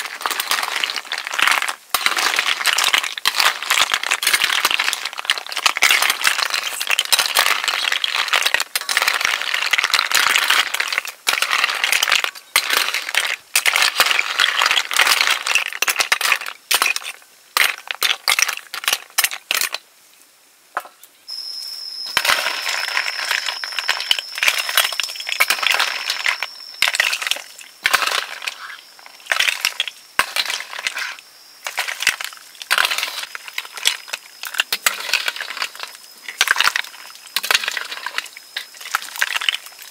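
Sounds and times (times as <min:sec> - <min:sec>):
snail shells clattering against metal: 0:00.0 - 0:19.8, 0:22.2 - 0:39.9
high-pitched whine: 0:21.3 - 0:34.4.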